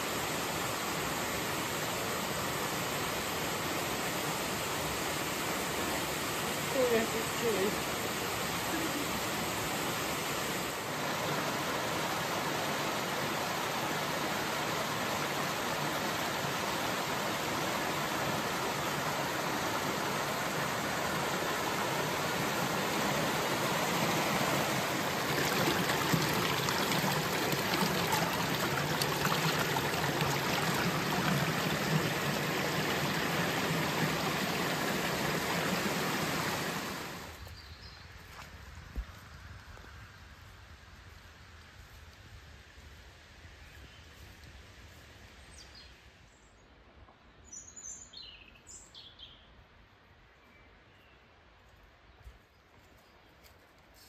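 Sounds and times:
waterfall rushing: 0:00.0 - 0:37.3
stream splashing over rocks: 0:00.0 - 0:37.4.

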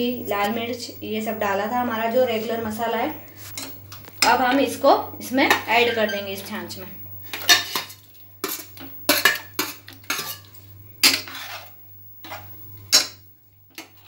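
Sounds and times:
ladle stirring in pot: 0:07.6 - 0:14.0.

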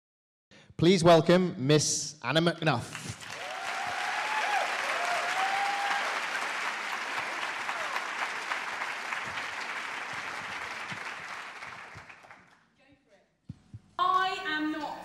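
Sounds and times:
audience applauding: 0:02.9 - 0:12.6
people whooping: 0:03.3 - 0:11.2.

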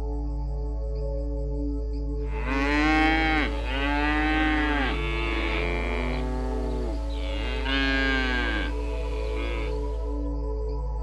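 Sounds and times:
soft ambient music: 0:00.0 - 0:11.0
animal calling: 0:02.3 - 0:10.0.

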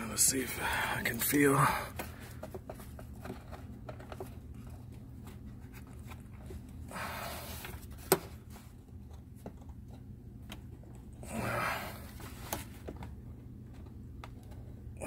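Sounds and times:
low steady hum: 0:00.0 - 0:15.0
close breathing: 0:00.5 - 0:02.6, 0:06.8 - 0:07.9, 0:11.2 - 0:12.5
handling noises: 0:01.0 - 0:14.8.

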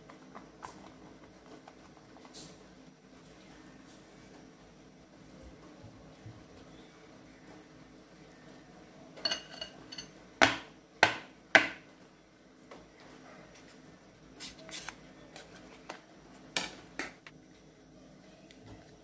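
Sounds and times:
metal spoon scraping: 0:09.2 - 0:10.1.

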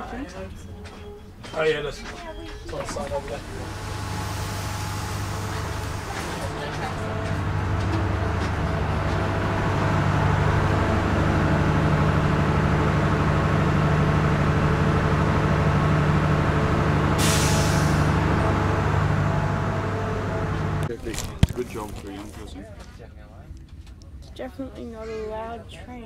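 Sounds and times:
heavy vehicle engine running: 0:02.6 - 0:22.5
air brakes hissing: 0:17.2 - 0:18.3.

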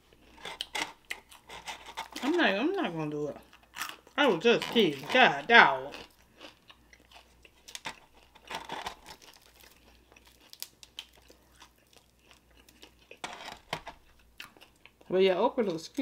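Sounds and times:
crinkling: 0:00.0 - 0:15.0
fingers tearing fried chicken: 0:06.4 - 0:13.0.

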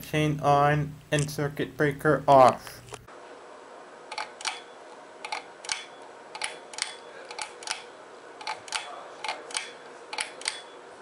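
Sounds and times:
pull-chain switch clicking: 0:04.1 - 0:10.8.

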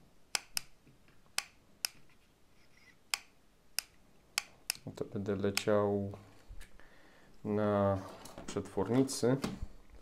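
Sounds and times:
sharp clicks: 0:00.3 - 0:00.8, 0:03.1 - 0:04.9.

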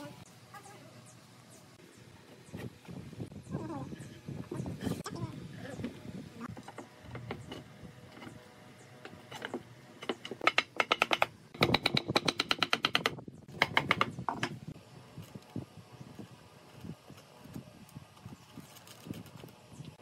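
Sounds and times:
wooden mallet tapping: 0:10.1 - 0:14.5.

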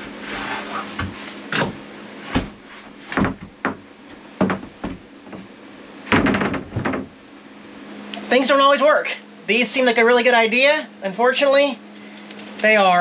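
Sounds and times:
steady hum: 0:00.0 - 0:13.0
wooden board knocks and thumps: 0:01.0 - 0:05.5, 0:06.1 - 0:07.2.

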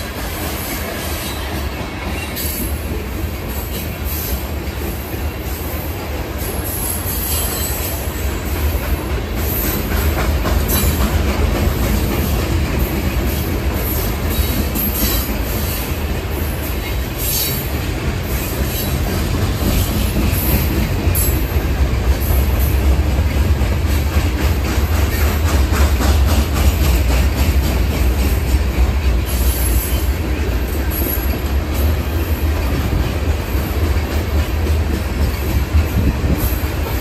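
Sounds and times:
train wheels rumbling on rail: 0:00.0 - 0:37.0
wheels clicking over rail joints: 0:00.0 - 0:37.0.

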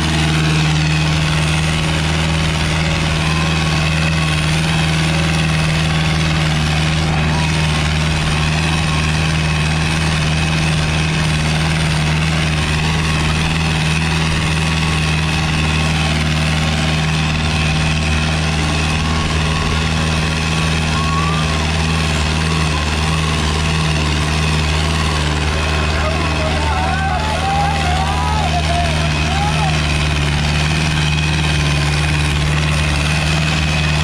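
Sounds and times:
tractor diesel engine under load: 0:00.0 - 0:34.0.

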